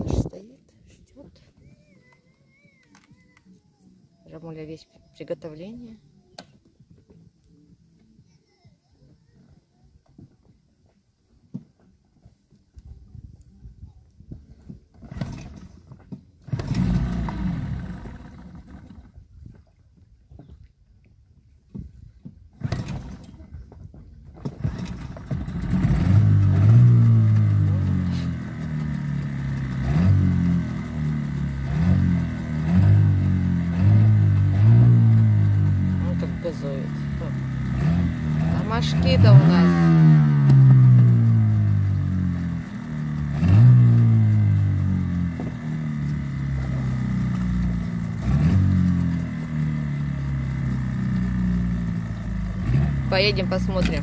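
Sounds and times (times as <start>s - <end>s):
outboard motor running: 14.2s - 54.0s
pull cord: 22.6s - 23.4s.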